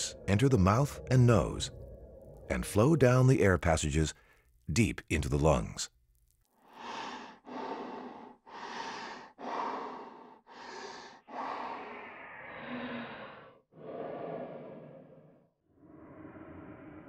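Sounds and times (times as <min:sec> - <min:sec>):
person breathing: 0:06.6 - 0:17.0.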